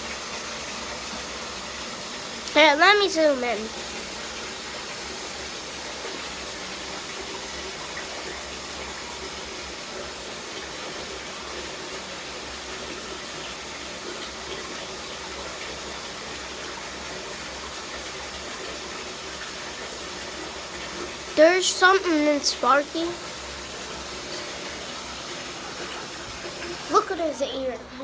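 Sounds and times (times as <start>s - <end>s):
water running from tap: 0.0s - 28.0s.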